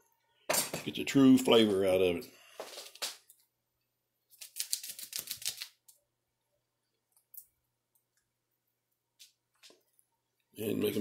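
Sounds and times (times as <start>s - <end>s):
plastic packet crinkling: 4.4s - 5.9s.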